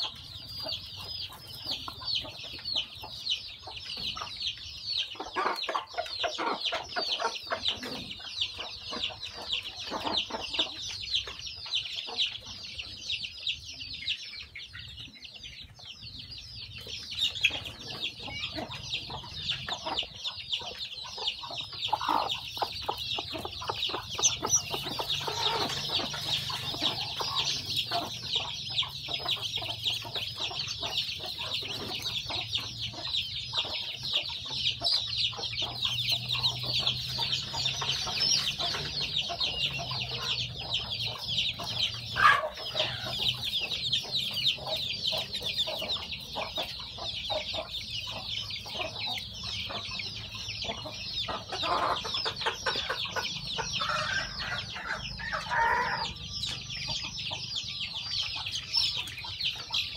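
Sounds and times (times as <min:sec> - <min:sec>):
chicks peeping: 0:00.0 - 0:59.9.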